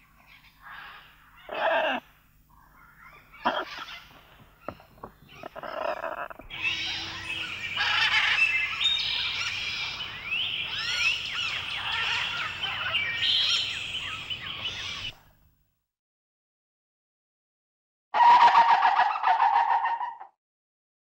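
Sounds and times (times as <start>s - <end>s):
birds chirping and whistling: 3.1s - 15.1s.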